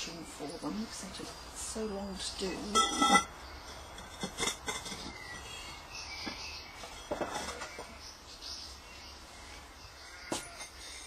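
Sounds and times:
pottery clinking and knocking: 2.6 - 5.4, 6.9 - 8.0.

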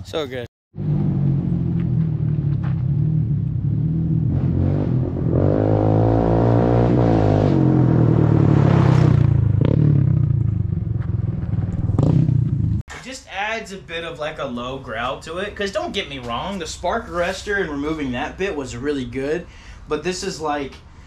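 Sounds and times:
atv engine revving: 0.8 - 12.8.

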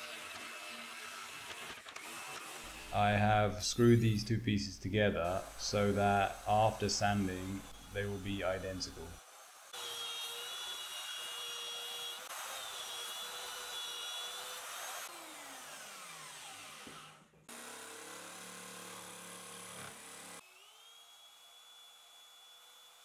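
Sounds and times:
belt sander sanding plywood: 5.1 - 20.4.

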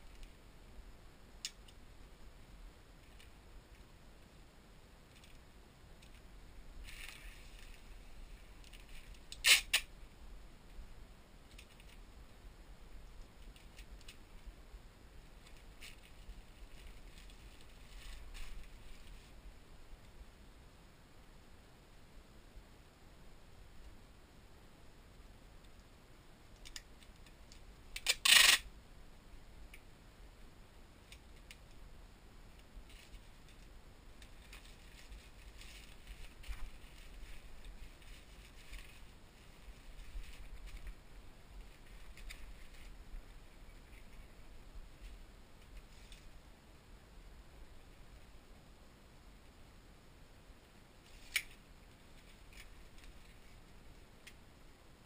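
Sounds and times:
packing tape ripped off roll: 9.3 - 9.9
plastic rustling: 15.4 - 19.4, 34.3 - 41.0.

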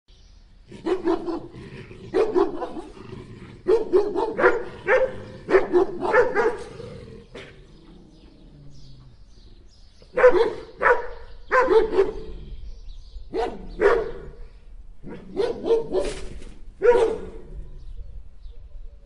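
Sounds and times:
dog barking: 0.8 - 1.5, 2.2 - 3.0, 3.6 - 6.8, 10.1 - 12.3, 13.3 - 14.4, 15.0 - 17.5.

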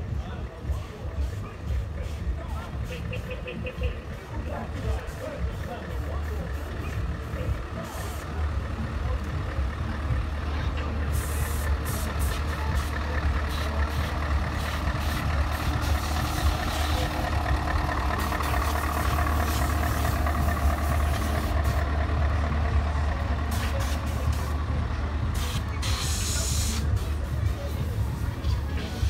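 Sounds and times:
heavy truck engine droning: 0.0 - 29.0
short hiss: 25.4 - 27.2.

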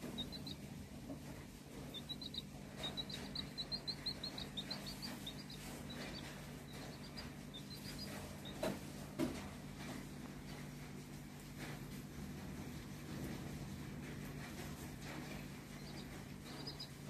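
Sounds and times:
chick peeping: 0.0 - 10.0, 14.4 - 17.0.

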